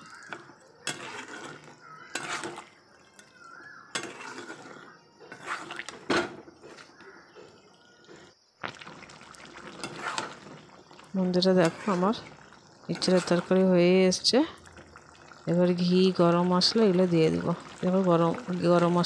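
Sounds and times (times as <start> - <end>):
metal spatula scraping a pan: 0.0 - 6.9, 9.6 - 10.7, 11.3 - 13.6.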